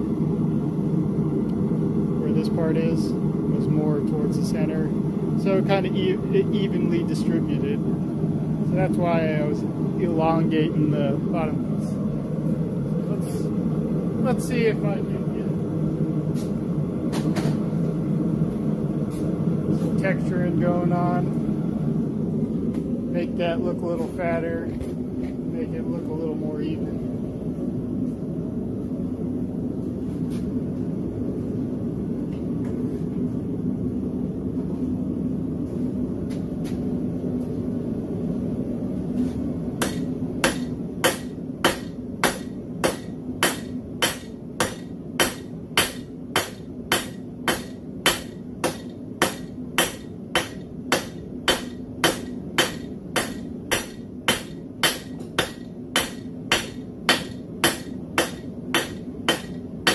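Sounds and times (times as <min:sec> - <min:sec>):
hammer striking metal on anvil: 0:39.8 - 0:59.9.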